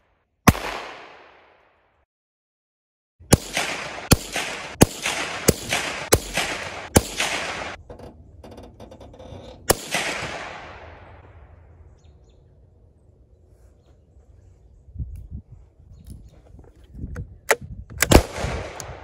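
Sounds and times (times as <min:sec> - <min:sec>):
gunshots with echo: 0:00.5 - 0:01.6, 0:03.3 - 0:07.8, 0:09.7 - 0:11.3.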